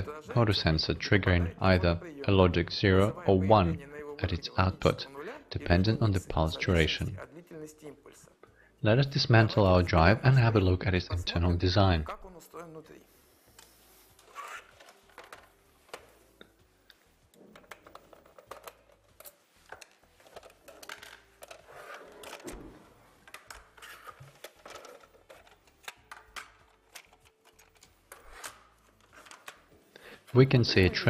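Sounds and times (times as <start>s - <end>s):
faint clicks and clatter of disassembly: 13.6s - 22.6s, 23.2s - 29.8s.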